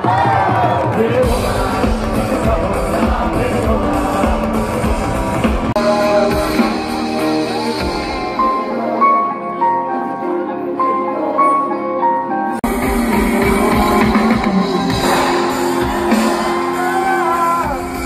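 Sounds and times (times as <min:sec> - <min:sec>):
drums: 0:00.0 - 0:09.4, 0:12.5 - 0:18.0
live band with singing: 0:00.0 - 0:18.0.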